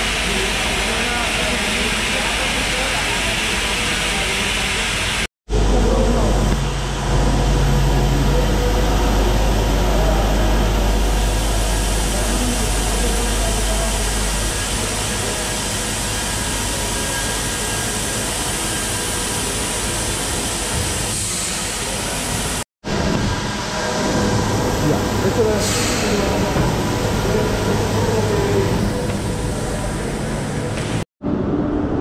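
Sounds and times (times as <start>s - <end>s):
faint machinery hum: 0.0s - 32.0s
deep hum: 5.5s - 17.8s
machinery hiss: 7.0s - 31.0s.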